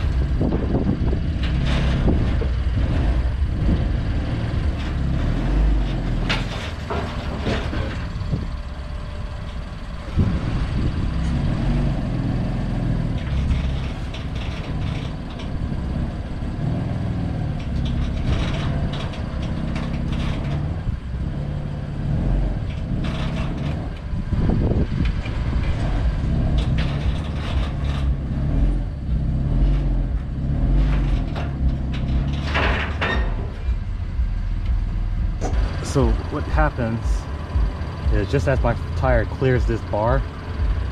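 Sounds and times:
car engine at low revs: 0.0 - 40.9
knocks and clicks: 24.9 - 40.9.

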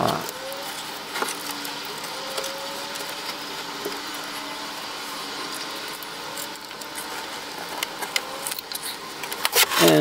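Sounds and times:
machine whirring: 0.0 - 10.0.

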